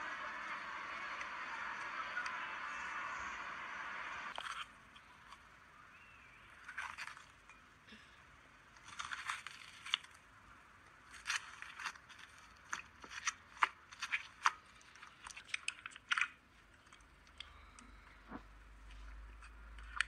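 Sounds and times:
foam crunching and crackling: 8.8s - 10.3s, 10.9s - 17.0s.

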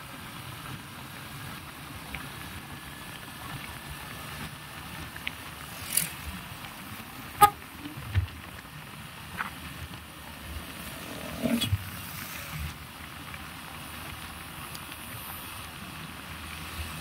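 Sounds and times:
road traffic: 0.0s - 17.0s.

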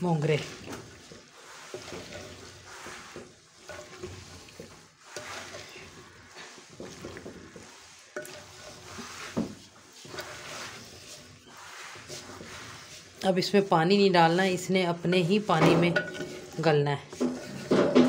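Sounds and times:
spoon scraping clay pot: 0.0s - 18.0s
vegetables sizzling: 0.0s - 18.0s.

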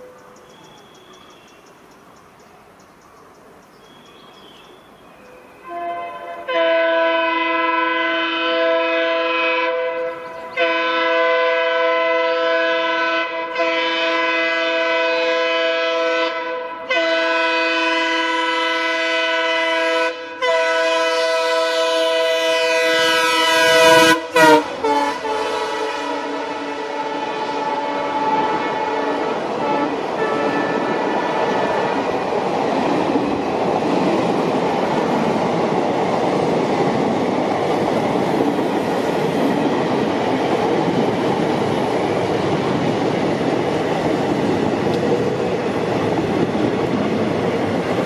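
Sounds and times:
locomotive horn blasts: 5.6s - 31.6s.

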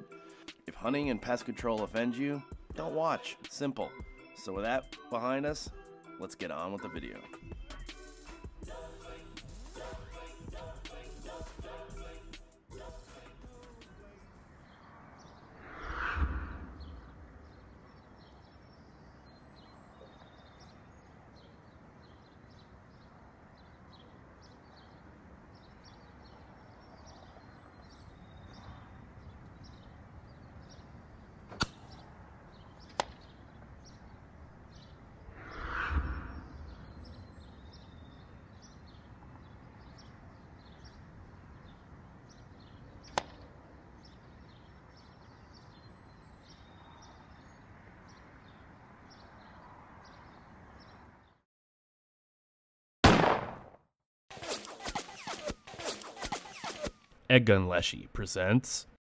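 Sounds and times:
whoosh: 15.5s - 17.3s, 35.2s - 36.9s
sharp cracks: 31.5s - 32.0s, 43.1s - 43.4s, 53.0s - 57.2s.

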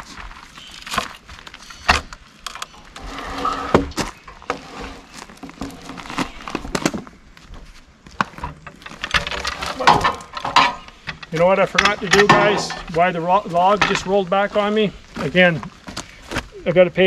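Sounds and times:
log knocking and scraping on steel: 8.1s - 14.4s.

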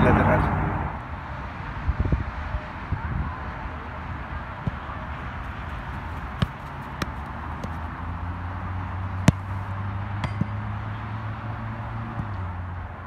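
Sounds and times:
outdoor background noise: 0.0s - 13.0s
soccer ball kicked hard: 4.6s - 7.9s, 9.1s - 9.6s.

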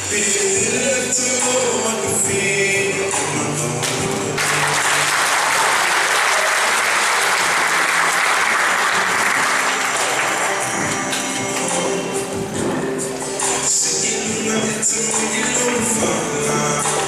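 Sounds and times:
music: 0.0s - 17.0s
audience applause: 4.4s - 11.7s.

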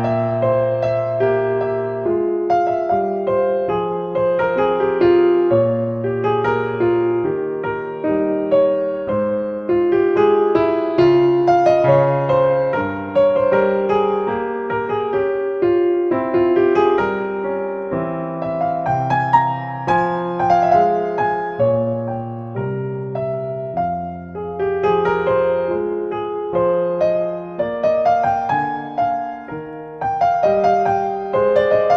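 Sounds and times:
gentle piano music: 0.0s - 31.9s.

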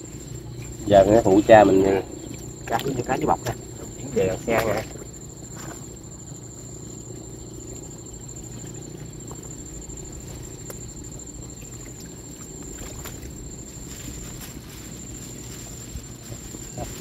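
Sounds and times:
insect trill: 0.0s - 17.0s.

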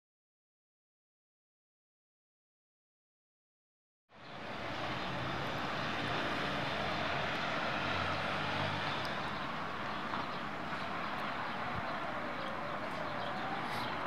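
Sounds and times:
outdoor town ambience: 4.1s - 14.0s
distant engine drone: 4.2s - 14.0s.

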